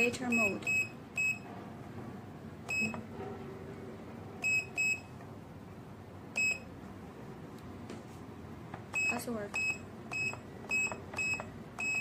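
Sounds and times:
keypad beeps: 0:00.0 - 0:01.4, 0:02.7 - 0:03.1, 0:04.4 - 0:05.1, 0:06.4 - 0:06.7, 0:08.9 - 0:12.0.

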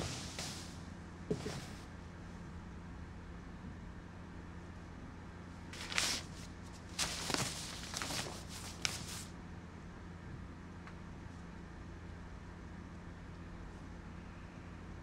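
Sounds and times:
clothing rustling: 0:00.0 - 0:00.8, 0:05.8 - 0:09.3
steady low hum: 0:05.4 - 0:15.0.

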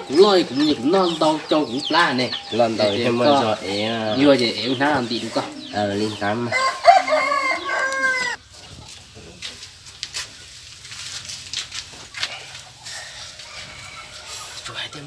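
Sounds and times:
rooster crowing: 0:06.2 - 0:08.4, 0:12.8 - 0:14.8.

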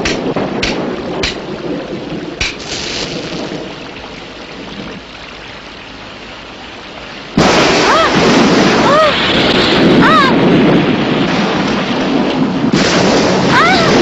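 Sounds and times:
sharp cracks: 0:00.0 - 0:01.5, 0:02.4 - 0:03.5
heavy rain rushing: 0:00.0 - 0:14.0.

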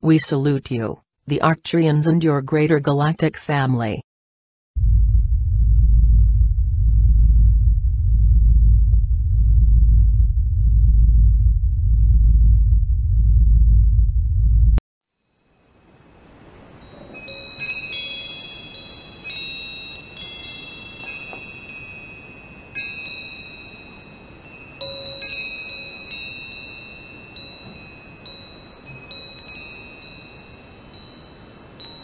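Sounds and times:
soft hiss: 0:15.2 - 0:32.0
chimes ringing: 0:15.4 - 0:32.0.

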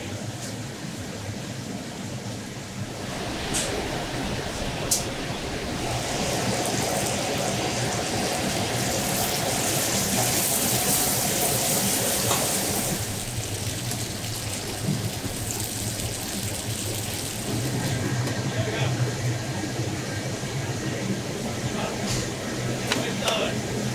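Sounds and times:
sauce sizzling on hot stone plate: 0:06.2 - 0:17.8.

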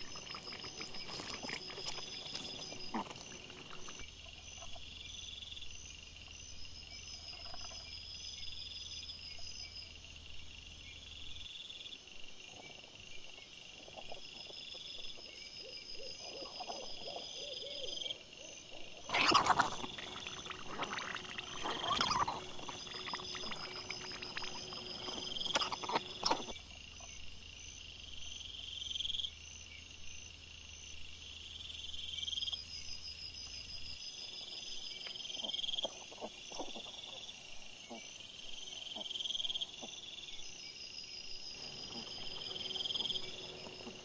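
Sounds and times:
wild boar rustling and grunting: 0:00.0 - 0:04.1, 0:18.8 - 0:26.6
crickets chirping: 0:00.0 - 0:44.0.

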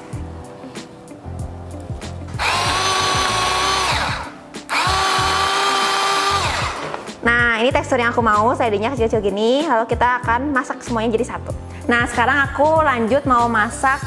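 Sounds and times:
food chopper motor whining: 0:02.4 - 0:07.1.

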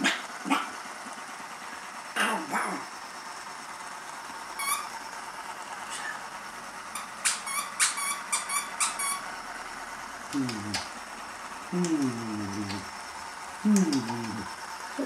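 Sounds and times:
squeaky dog toy squeaking: 0:04.6 - 0:04.9, 0:07.2 - 0:09.2.

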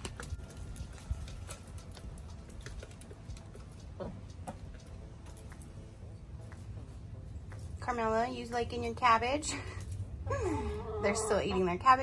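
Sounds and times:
beaks tapping on grain and tray: 0:00.0 - 0:05.7.

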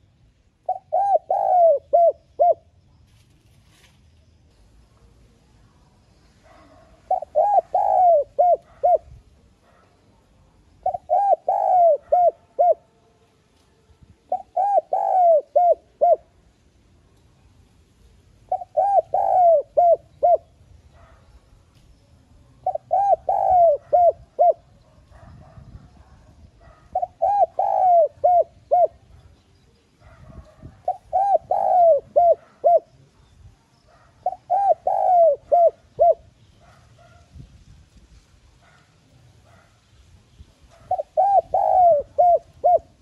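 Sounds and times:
dove cooing: 0:00.0 - 0:02.8, 0:06.4 - 0:10.0, 0:10.7 - 0:12.9, 0:14.2 - 0:16.4, 0:18.4 - 0:21.2, 0:22.6 - 0:29.4, 0:30.0 - 0:33.2, 0:33.8 - 0:37.2, 0:40.7 - 0:43.0.

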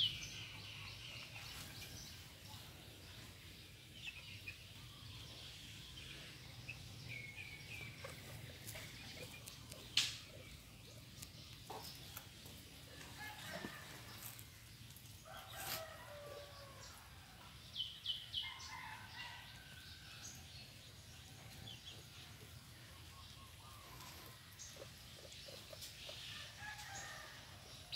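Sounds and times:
chicken calls and clucks: 0:00.3 - 0:27.9
rooster crowing: 0:15.3 - 0:17.0.

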